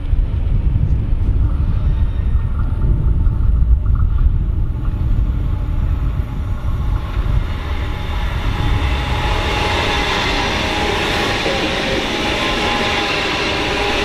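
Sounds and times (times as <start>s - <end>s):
steady low rumble: 0.0s - 14.0s
train wheels rushing on rails: 0.0s - 14.0s.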